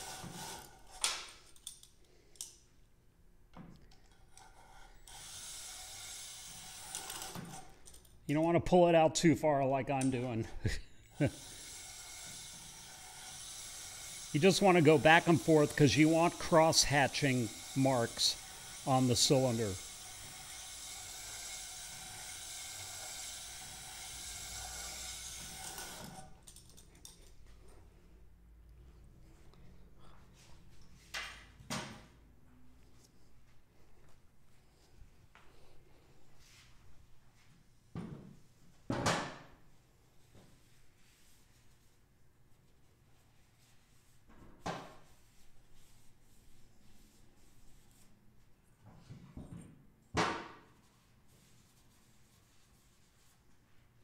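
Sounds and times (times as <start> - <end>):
cordless drill spinning up: 0.0 - 1.1, 4.6 - 8.0, 11.1 - 26.6.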